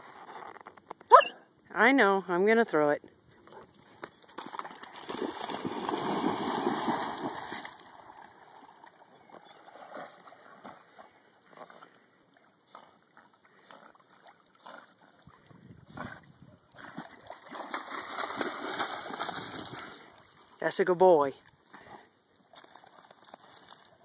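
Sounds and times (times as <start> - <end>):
dog splashing into pond: 4.2 - 11.8, 16.8 - 20.5
dog swimming splashes: 4.4 - 20.5.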